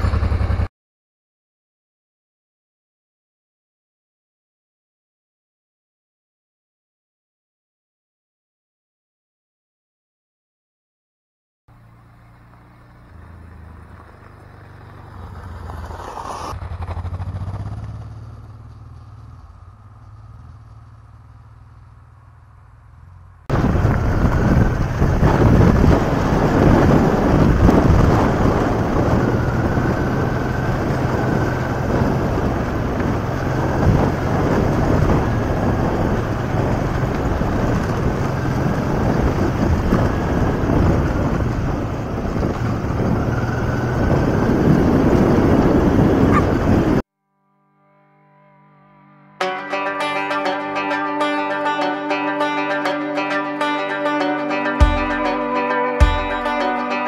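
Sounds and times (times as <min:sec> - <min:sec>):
motorcycle engine passing by: 0:00.0 - 0:00.7, 0:11.7 - 0:47.0
track rumble: 0:00.0 - 0:00.7, 0:11.7 - 0:47.0, 0:49.4 - 0:57.0
wind noise: 0:23.5 - 0:47.0.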